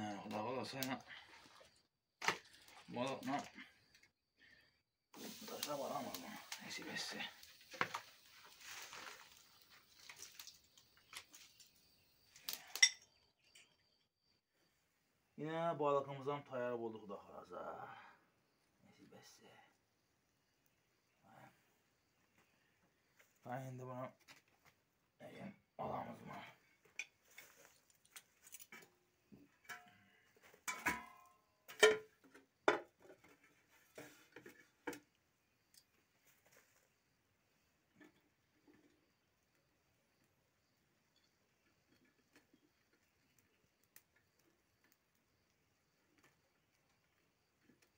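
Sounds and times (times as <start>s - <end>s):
clinks and knocks of grill utensils: 12.5s - 13.1s, 26.9s - 27.5s, 29.5s - 35.0s
soft handling noises: 26.7s - 29.0s.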